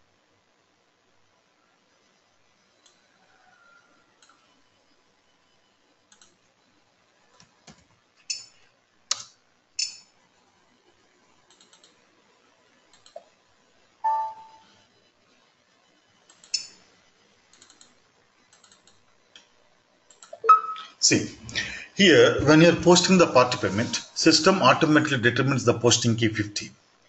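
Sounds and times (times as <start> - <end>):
computer mouse clicks: 4.2 - 4.4, 6.1 - 6.4, 11.5 - 12.0, 12.9 - 13.3, 16.3 - 16.8, 17.5 - 19.5, 20.1 - 20.8
short pitched tone: 14.0 - 14.6, 20.4 - 21.0.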